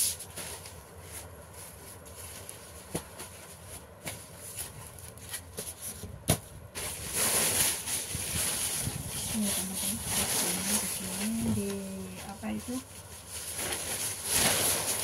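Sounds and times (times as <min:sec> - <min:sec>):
paper rustling: 0:06.8 - 0:15.0.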